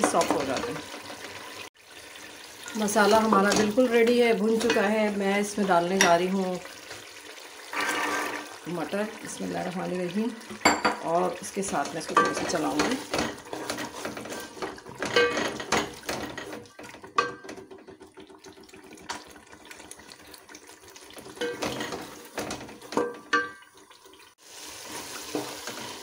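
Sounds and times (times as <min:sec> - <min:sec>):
wooden spatula scraping metal pot: 0:02.7 - 0:09.0, 0:11.2 - 0:18.1, 0:21.2 - 0:23.2.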